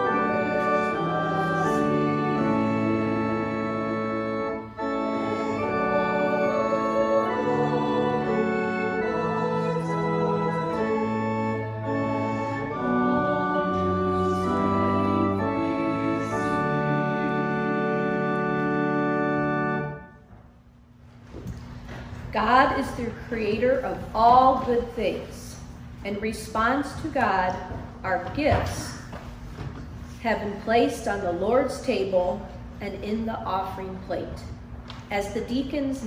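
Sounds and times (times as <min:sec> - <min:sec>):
church organ playing a hymn: 0:00.0 - 0:20.3.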